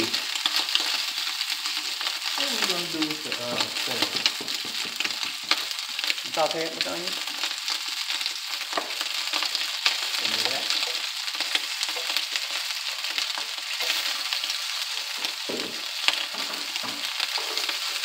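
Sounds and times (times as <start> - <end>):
sausage sizzling in a wok: 0.0 - 18.0
wooden spatula scraping: 10.7 - 18.0.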